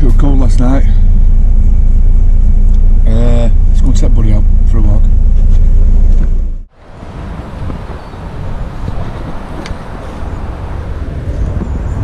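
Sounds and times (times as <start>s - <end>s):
loud low rumble: 0.0s - 9.5s
gusty wind on microphone: 5.2s - 12.0s.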